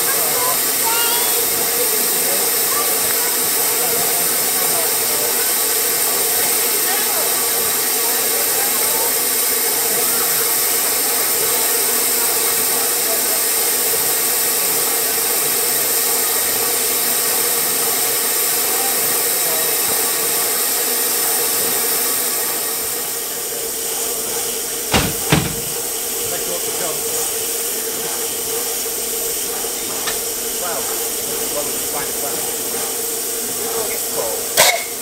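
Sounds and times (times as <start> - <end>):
steam train hissing: 0.0 - 35.0
sharp knocks: 24.9 - 25.8.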